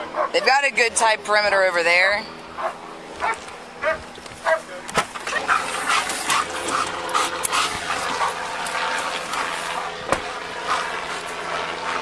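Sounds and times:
dog panting and whining: 0:05.3 - 0:09.9.

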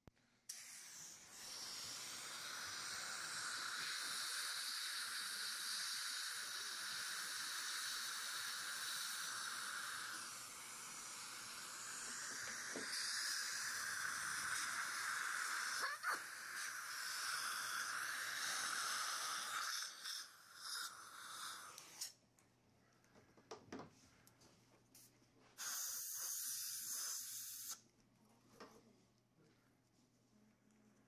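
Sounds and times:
air abrasion hiss: 0:00.5 - 0:22.2, 0:25.0 - 0:27.8
suction tube drawing air: 0:00.5 - 0:22.2.

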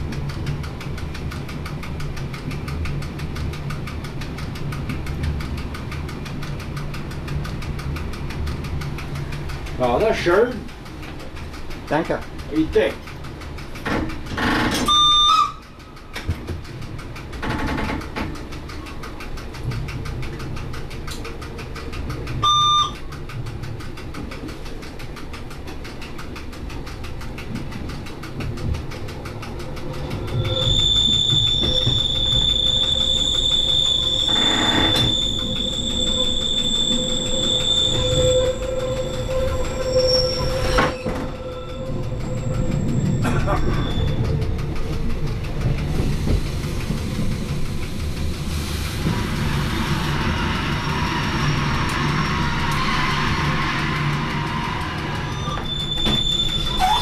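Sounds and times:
wheels rumbling on track: 0:00.0 - 0:57.0
wheels squealing on a curve: 0:29.9 - 0:44.4, 0:49.1 - 0:57.0.

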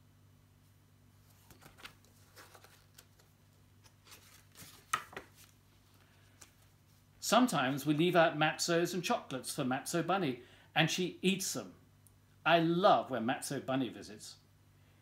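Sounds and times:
faint steady hum: 0:00.0 - 0:15.0
book pages rustling: 0:01.2 - 0:07.1
paper slap: 0:04.6 - 0:05.5.

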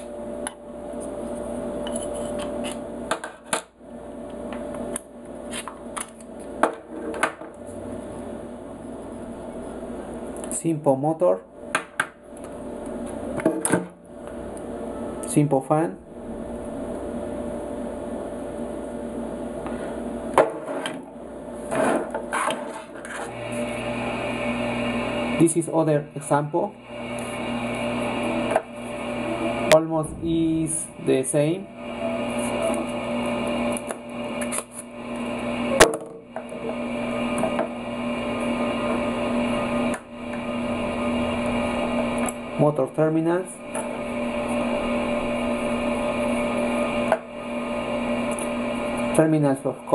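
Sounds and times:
steady low hum: 0:14.0 - 0:49.9.

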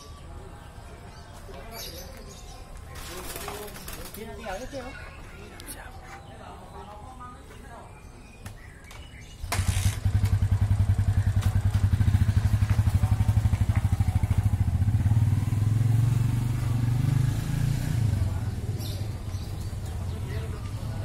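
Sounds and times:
small engine running: 0:09.4 - 0:17.9.

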